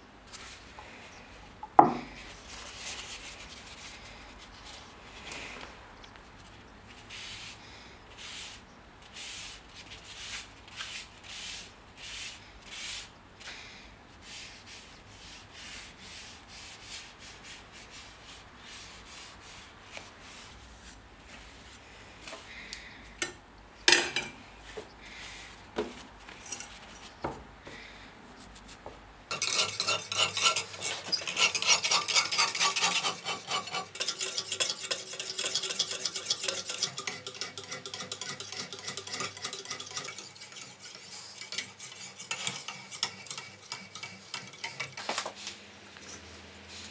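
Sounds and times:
sharpening stone scraping knife blade: 0:29.3 - 0:45.0.

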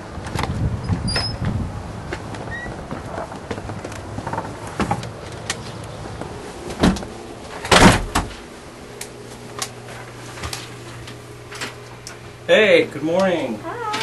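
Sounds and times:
light footsteps: 0:01.4 - 0:07.6
door swinging shut with thud: 0:06.8 - 0:08.3.

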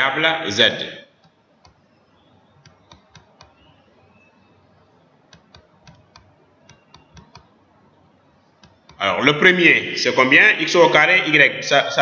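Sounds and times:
faint computer clicks: 0:01.2 - 0:09.0.

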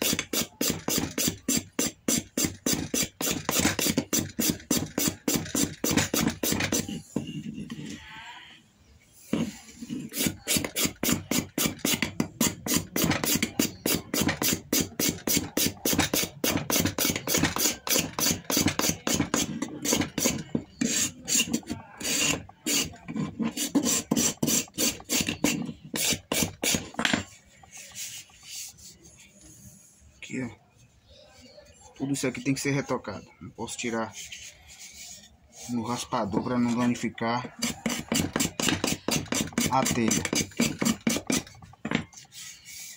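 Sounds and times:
hand scraper rasping on wood: 0:00.0 - 0:08.0, 0:09.3 - 0:27.0, 0:36.6 - 0:42.9.

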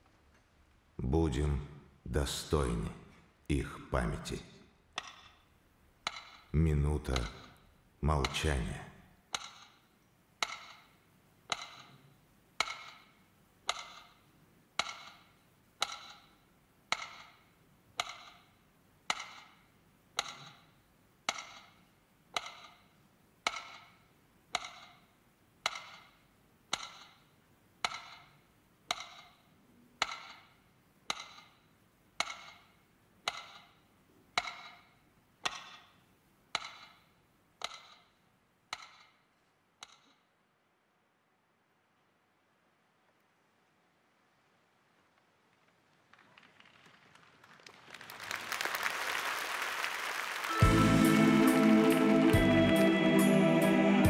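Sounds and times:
metronome ticking: 0:06.0 - 0:08.7, 0:10.4 - 0:12.0, 0:12.6 - 0:14.2, 0:14.8 - 0:17.4, 0:18.0 - 0:18.5, 0:20.2 - 0:20.7, 0:22.4 - 0:33.8, 0:34.4 - 0:35.9, 0:36.5 - 0:38.1.

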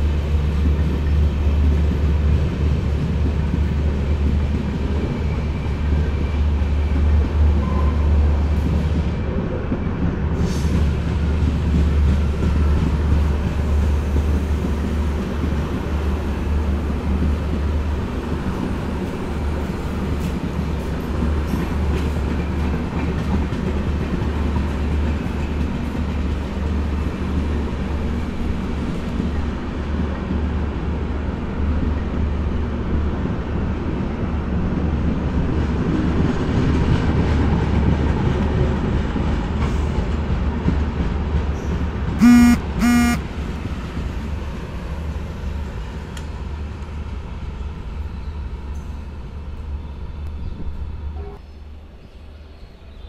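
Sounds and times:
train wheels rumbling on rails: 0:00.0 - 0:42.2, 0:43.2 - 0:53.0
train horn toots: 0:42.2 - 0:43.2.

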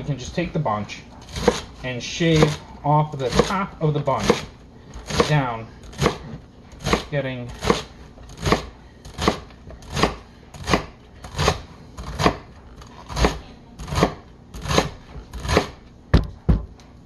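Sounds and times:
knife chopping celery on board: 0:01.3 - 0:01.7, 0:02.3 - 0:02.6, 0:03.2 - 0:12.4, 0:13.0 - 0:15.8.

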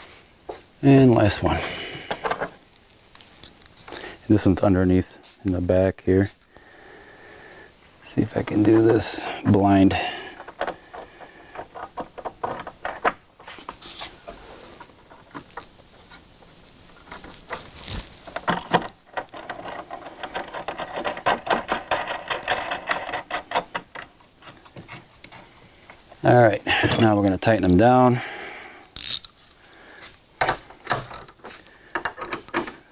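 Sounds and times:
metal clicks and rattles of nut: 0:06.4 - 0:06.7, 0:08.4 - 0:13.2, 0:18.3 - 0:24.6, 0:28.9 - 0:29.4, 0:30.4 - 0:32.9.

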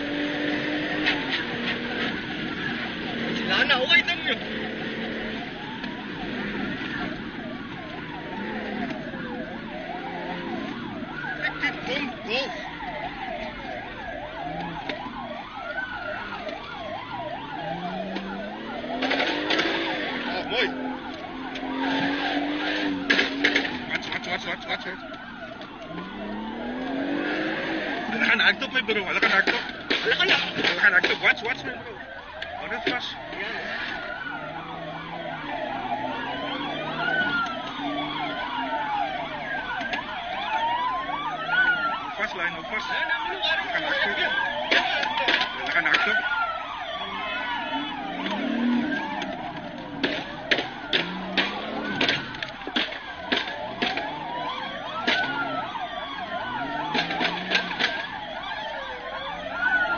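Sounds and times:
police siren wail: 0:00.0 - 0:59.9
police siren yelp: 0:00.0 - 0:59.9.

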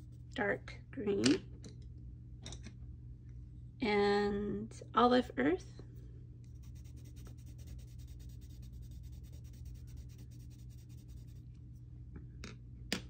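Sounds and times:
pencil shading on paper: 0:06.6 - 0:11.4.

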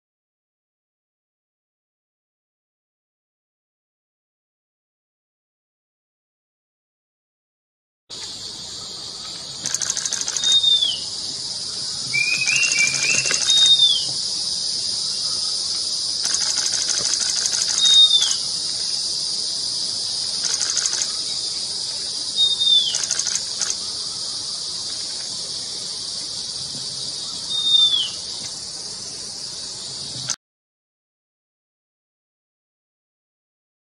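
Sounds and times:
high insect drone: 0:08.1 - 0:30.4
higher buzzing insect pulses: 0:08.1 - 0:30.4
bird whistle slurring downward: 0:09.6 - 0:11.1, 0:12.1 - 0:14.2, 0:16.2 - 0:18.5, 0:22.3 - 0:24.1, 0:27.3 - 0:28.3.

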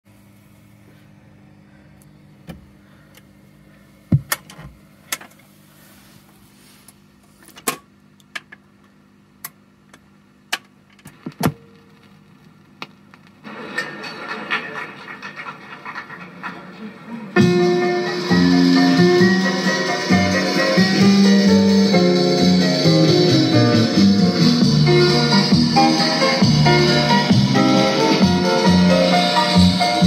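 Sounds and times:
record playing music: 0:11.0 - 0:14.5, 0:16.9 - 0:30.0.

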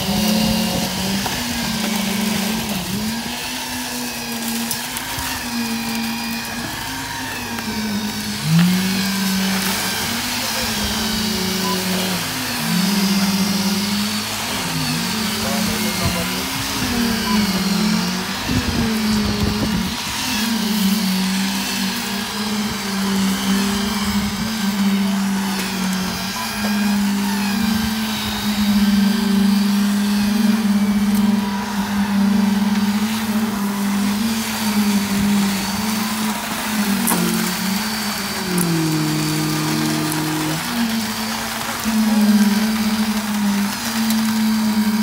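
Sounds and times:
concrete pump motor hum: 0:00.0 - 0:45.0.

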